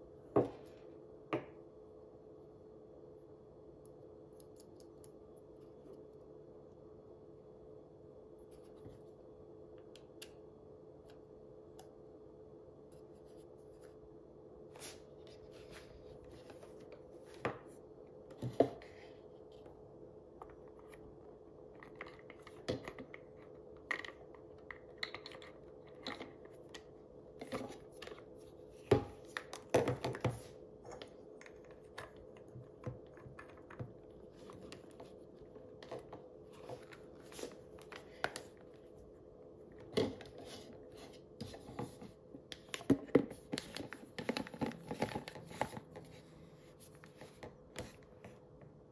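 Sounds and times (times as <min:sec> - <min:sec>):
faint hum: 0:00.0 - 0:48.9.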